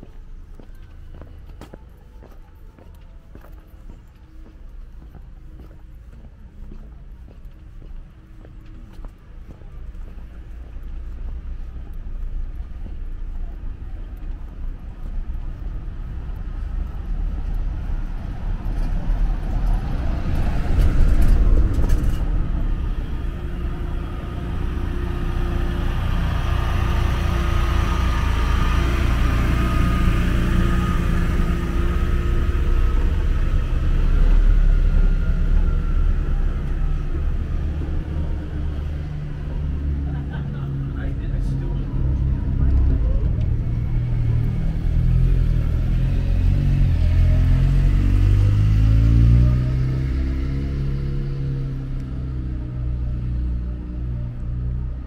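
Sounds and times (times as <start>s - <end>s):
steady low rumble: 0.0s - 55.0s
car passing by: 16.2s - 55.0s.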